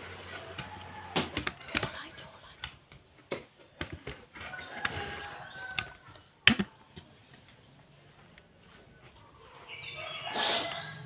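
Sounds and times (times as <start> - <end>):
low background noise: 0.0 - 11.0.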